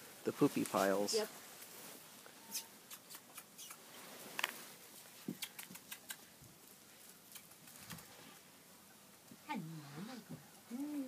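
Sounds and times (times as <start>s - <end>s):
footsteps on dry straw: 0.3s - 2.2s
light irregular ticks: 2.5s - 3.8s, 5.3s - 8.1s.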